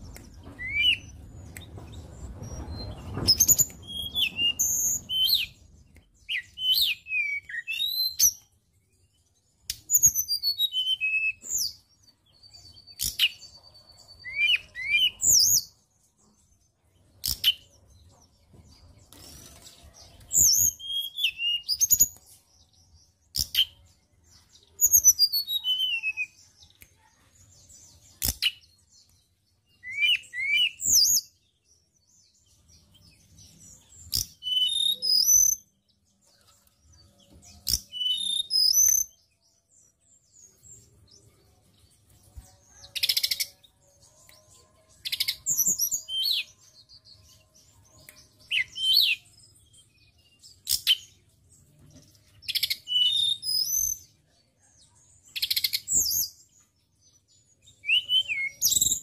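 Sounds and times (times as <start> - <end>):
bird singing whistled notes: 0.0 - 15.9, 20.0 - 26.6, 28.2 - 36.0, 37.5 - 40.9, 45.0 - 51.2, 52.4 - 54.2, 55.2 - 56.5, 57.3 - 59.0.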